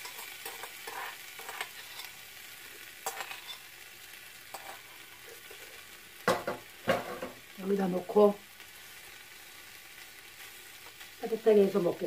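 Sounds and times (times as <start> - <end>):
metal spoon scraping bowl: 0.0 - 2.1, 3.0 - 3.6, 4.5 - 5.7
pancakes sizzling in pan: 0.0 - 12.0.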